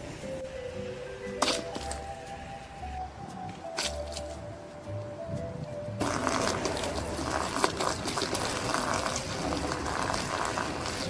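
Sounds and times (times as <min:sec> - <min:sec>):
water pouring onto cardboard: 0:06.0 - 0:11.0.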